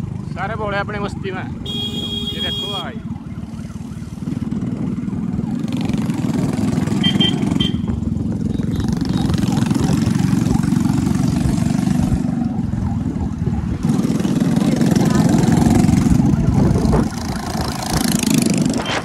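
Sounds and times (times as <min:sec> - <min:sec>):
motorcycle engine running: 0:00.0 - 0:19.0
short high horn beeps: 0:01.7 - 0:02.8
wind rumble on microphone: 0:07.8 - 0:19.0.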